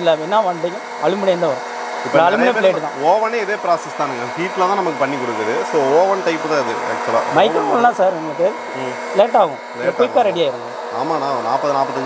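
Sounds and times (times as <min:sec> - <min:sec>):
snack maker blower running: 0:00.0 - 0:12.0
person's voice wavering: 0:07.4 - 0:08.1.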